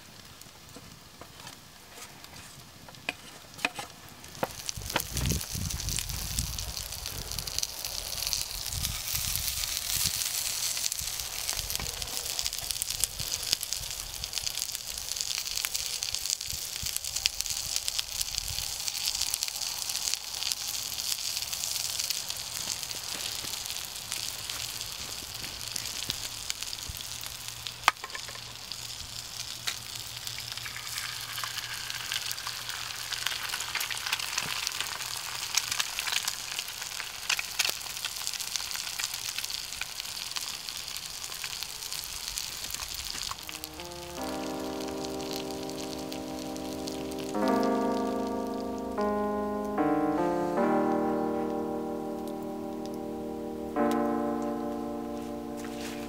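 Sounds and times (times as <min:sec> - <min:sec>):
wooden spatula scraping: 0:01.4 - 0:03.9
food sizzling in skillet: 0:04.5 - 0:49.2.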